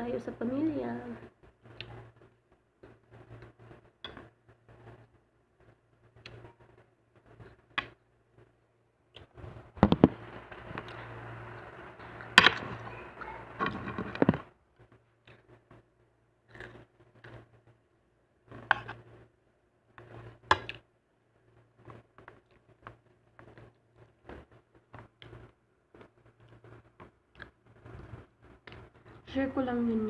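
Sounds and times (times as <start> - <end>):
rustling and clatter: 12.4 - 15.9.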